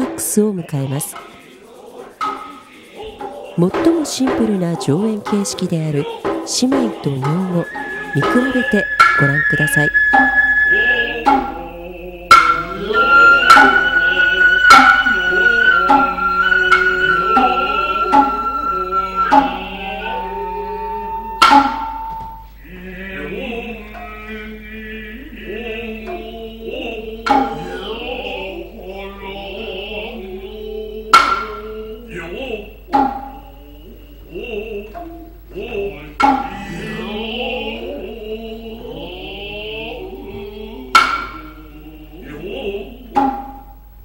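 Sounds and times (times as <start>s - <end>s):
hand-drum strikes: 0.0s - 1.4s, 2.1s - 22.6s, 27.2s - 28.0s, 31.1s - 31.8s, 32.8s - 33.6s, 36.2s - 37.1s, 40.9s - 41.6s, 43.0s - 44.0s
male chorus chanting in unison: 0.6s - 43.6s
high wavering flute: 7.0s - 24.4s, 25.3s - 28.7s, 31.1s - 31.9s, 32.7s - 35.4s, 36.2s - 38.1s, 40.8s - 41.8s, 42.5s - 43.8s
held drone: 7.6s - 22.2s.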